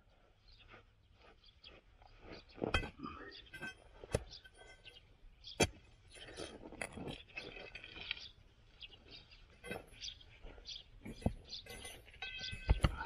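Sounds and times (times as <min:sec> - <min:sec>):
birds chirping faintly: 0:00.0 - 0:13.0
soil crunching: 0:00.0 - 0:13.0
crowbar knocking on stones: 0:11.2 - 0:13.0.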